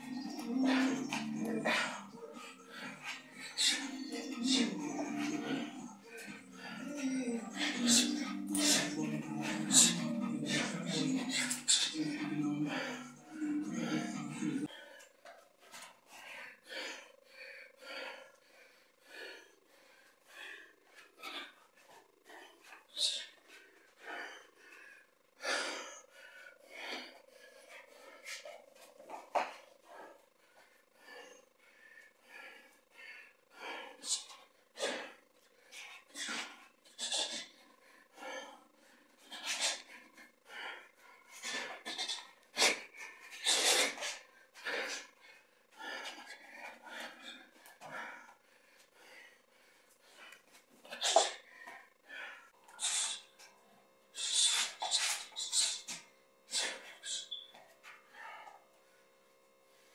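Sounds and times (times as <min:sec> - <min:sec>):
sharp hissing exhalations: 0:52.7 - 0:53.3, 0:54.2 - 0:55.9.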